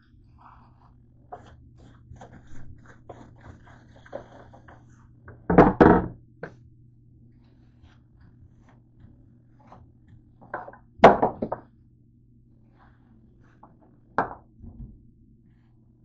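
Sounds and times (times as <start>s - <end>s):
knocks on kitchen counter: 5.5s - 6.1s, 10.5s - 11.6s, 14.2s - 14.9s
low hum: 6.1s - 16.0s.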